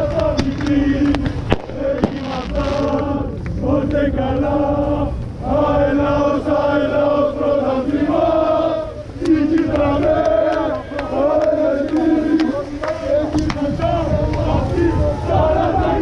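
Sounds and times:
crowd chanting in unison: 0.0s - 16.0s
sharp bang: 1.5s - 2.9s.

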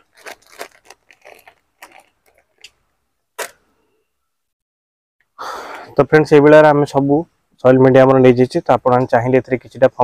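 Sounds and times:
plastic bag crinkling: 0.0s - 2.8s.

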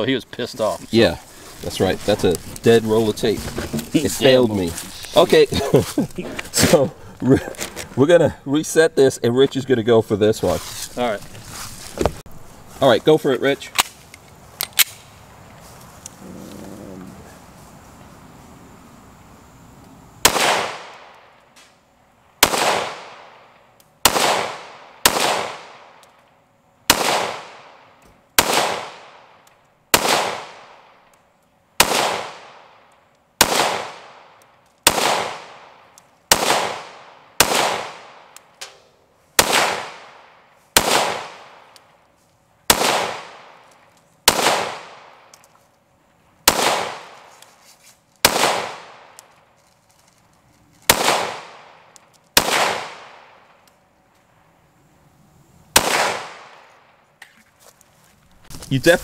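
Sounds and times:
pistol shots with ringing echo: 20.2s - 21.4s, 22.4s - 26.0s, 26.9s - 31.0s, 31.8s - 38.4s, 39.4s - 41.8s, 42.7s - 43.7s, 44.3s - 45.3s, 46.4s - 47.2s, 48.2s - 49.2s, 50.9s - 53.6s, 55.7s - 57.0s.

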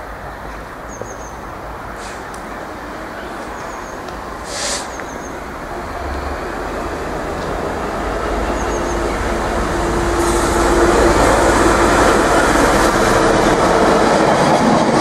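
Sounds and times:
diesel locomotive approaching: 0.0s - 15.0s
short hiss: 2.0s - 2.3s, 4.4s - 5.0s.

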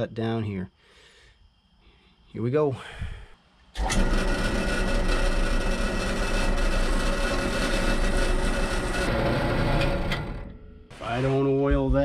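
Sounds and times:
bandsaw cutting metal: 3.8s - 10.5s.

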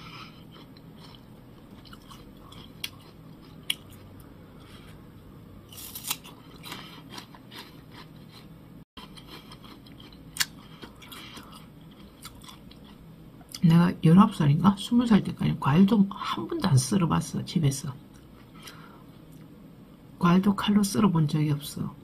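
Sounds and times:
pear crunching being chewed: 0.0s - 4.8s, 5.7s - 13.6s.

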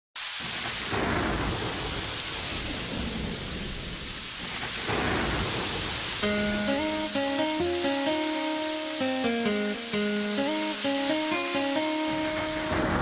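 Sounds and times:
heavy rain: 0.2s - 13.0s
thunder rolling: 0.4s - 8.2s, 10.4s - 13.0s
plucked guitar notes: 6.2s - 13.0s.

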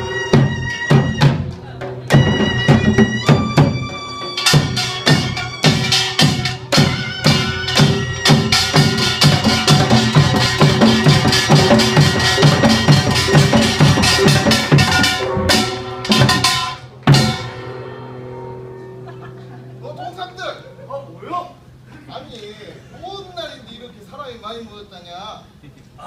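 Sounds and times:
drums beating fast rhythm: 0.0s - 17.7s
gongs ringing: 0.0s - 21.8s.

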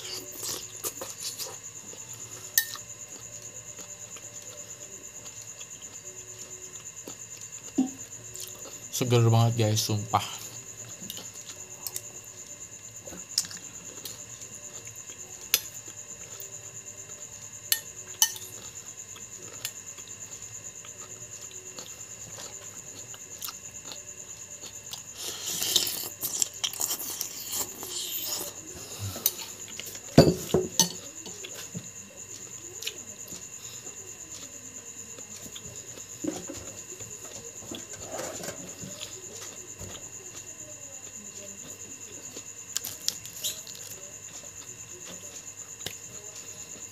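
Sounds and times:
slurping and chewing: 0.0s - 4.6s, 18.0s - 30.0s
metal spoon clinking against bowl: 2.6s - 2.8s, 17.7s - 18.6s, 30.2s - 31.0s.

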